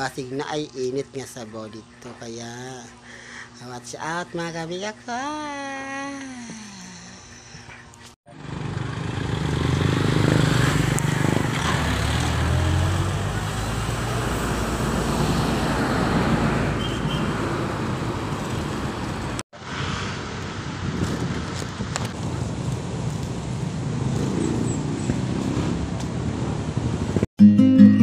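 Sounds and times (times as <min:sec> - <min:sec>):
street hum: 0:00.0 - 0:27.3
vehicle engine running: 0:08.3 - 0:15.7.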